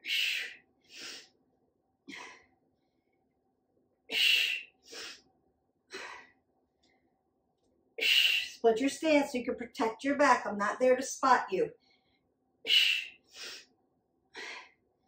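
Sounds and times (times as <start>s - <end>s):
woman breathing hard: 0.0s - 1.4s, 4.1s - 5.2s, 5.9s - 6.4s, 11.8s - 13.7s, 14.4s - 14.8s.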